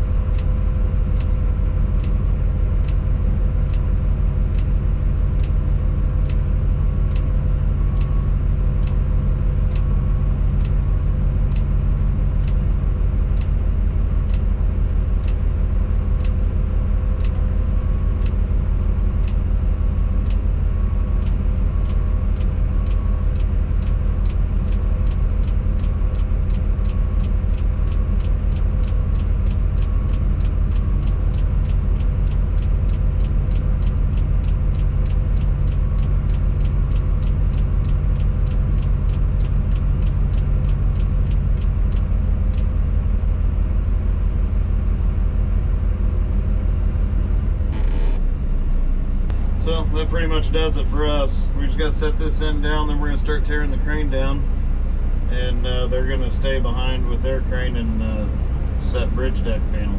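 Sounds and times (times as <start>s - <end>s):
crane engine droning: 0.0s - 59.9s
sharp clicking: 5.3s - 5.6s, 17.2s - 17.5s, 21.2s - 42.7s.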